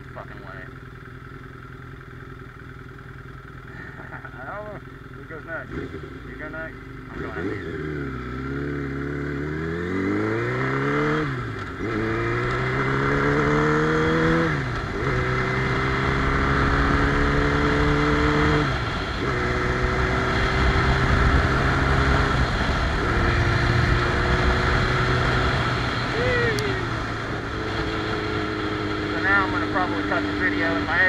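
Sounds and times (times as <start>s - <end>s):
motorcycle engine accelerating: 0.0s - 31.0s.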